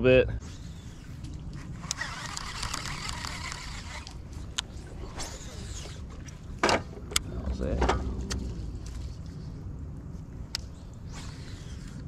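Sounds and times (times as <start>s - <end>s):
fishing reel whirring: 0.4s - 6.1s, 10.7s - 12.0s
fishing reel clicking: 1.8s - 4.2s
low rumble: 4.1s - 11.4s.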